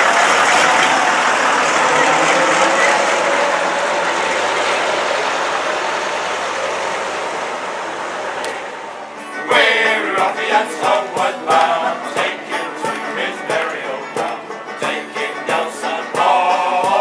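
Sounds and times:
bus engine pulling away: 0:00.0 - 0:17.0
instruments playing: 0:00.0 - 0:17.0
men singing a sea shanty: 0:09.2 - 0:17.0.

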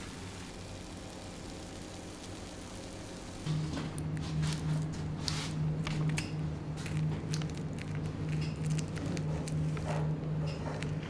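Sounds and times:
low mechanical hum: 0:00.0 - 0:11.0
food handling clicks and squishing: 0:05.8 - 0:11.0.

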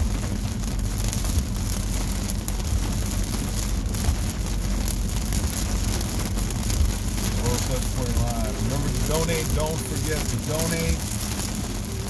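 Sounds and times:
engine and tyres on wet road: 0:00.0 - 0:12.0
rain on car roof: 0:00.0 - 0:12.0.

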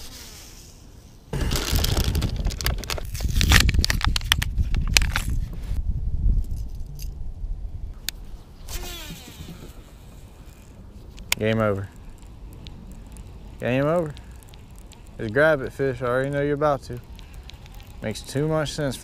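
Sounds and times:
plastic packaging crinkling: 0:01.4 - 0:05.3
handling clicks and bumps: 0:01.4 - 0:05.4.

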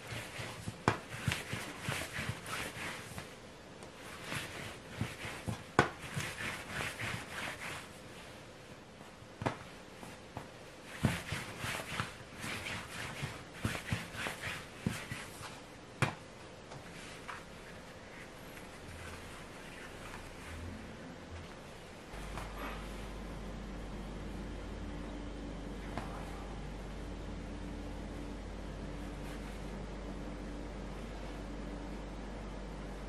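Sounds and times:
hands rubbing dough on table: 0:00.0 - 0:08.4, 0:09.4 - 0:15.7, 0:16.7 - 0:20.7, 0:28.8 - 0:29.9.

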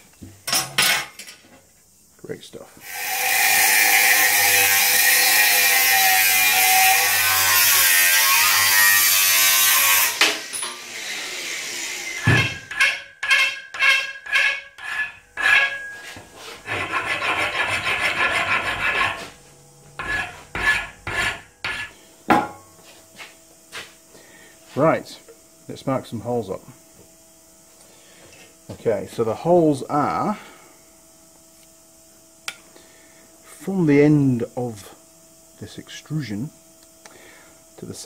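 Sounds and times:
file scraping metal: 0:02.8 - 0:10.3, 0:12.2 - 0:19.4, 0:20.0 - 0:22.6
angle grinder cutting steel: 0:02.8 - 0:19.3, 0:20.0 - 0:22.0.

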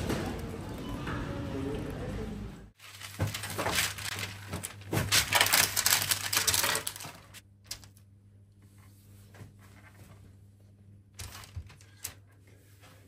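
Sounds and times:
baking paper crackling: 0:02.8 - 0:08.0.

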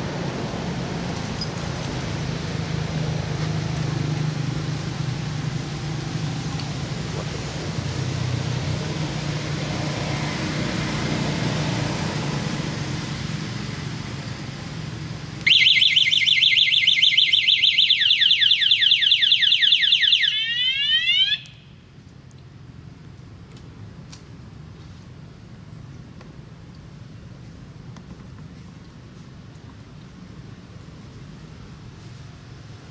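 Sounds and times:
motorbike alarm siren: 0:15.4 - 0:21.7.

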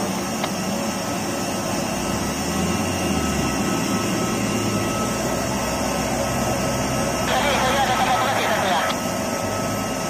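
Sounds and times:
jet-like whine with steady tones: 0:00.0 - 0:10.0
low engine rumble: 0:00.3 - 0:09.9.

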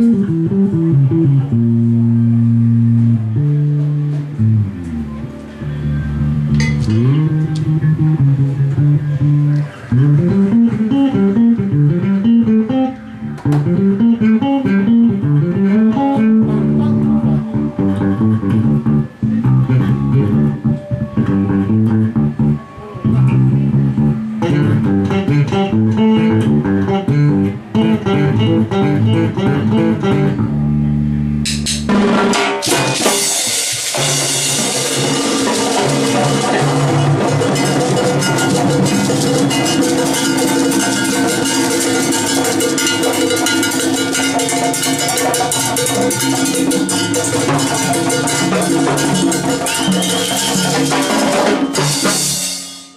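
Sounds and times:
congas: 0:00.0 - 0:30.5, 0:31.4 - 0:52.9
electric bass guitar runs: 0:00.0 - 0:52.4
cymbal: 0:31.5 - 0:52.9
cowbell: 0:35.0 - 0:52.9.

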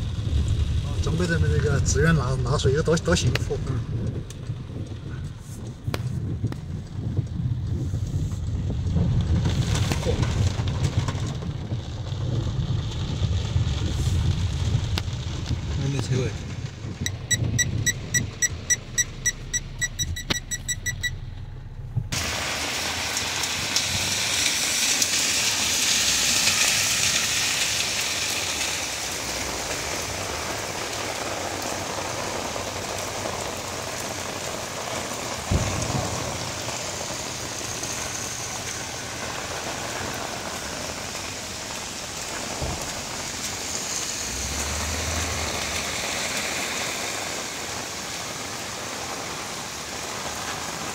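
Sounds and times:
heavy rain on a car: 0:00.0 - 0:50.9
regular ticking: 0:17.0 - 0:21.2.

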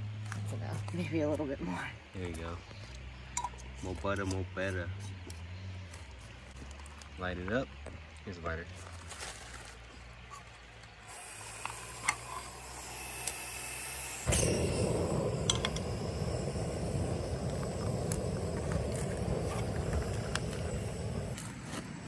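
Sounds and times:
gas burner flame rushing: 0:11.1 - 0:22.0.

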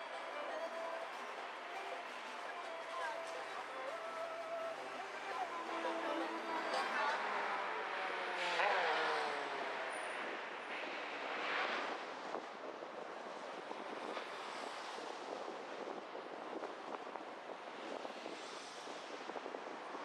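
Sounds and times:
tyre and traffic noise: 0:00.0 - 0:20.0
rush of passing vehicle: 0:00.8 - 0:16.2, 0:17.7 - 0:20.0
vehicle engine passing by: 0:05.7 - 0:11.9.

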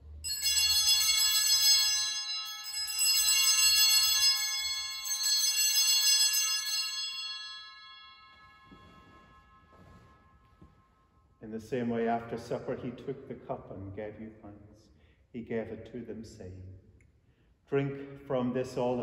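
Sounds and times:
high bright bells ringing: 0:00.0 - 0:11.9.

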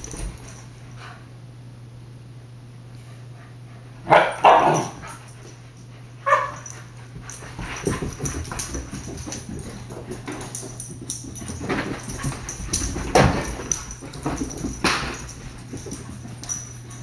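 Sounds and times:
puppies barking: 0:04.1 - 0:05.2, 0:06.2 - 0:06.7
scuffles and thumps: 0:06.4 - 0:17.0.

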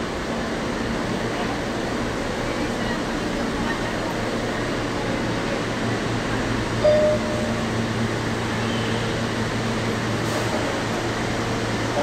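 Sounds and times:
subway train ventilation hum: 0:00.0 - 0:12.0
brief tone: 0:06.8 - 0:07.7.

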